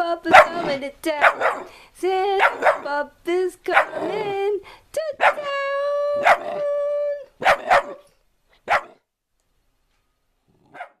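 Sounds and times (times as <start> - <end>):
dog barking: 0.3 - 1.7, 2.4 - 2.9, 3.7 - 4.2, 5.2 - 5.5, 6.2 - 6.6, 7.4 - 9.0, 10.7 - 11.0.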